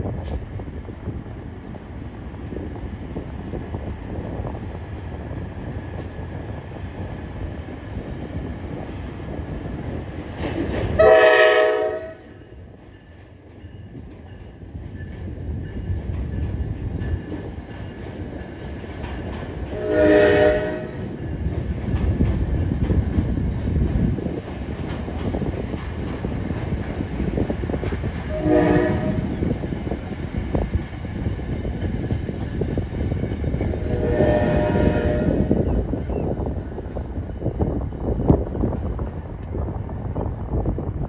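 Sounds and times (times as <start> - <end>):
train rolling across bridge: 0.0 - 41.0
train horn: 10.9 - 12.4, 19.7 - 21.1, 28.3 - 29.4, 33.7 - 35.7.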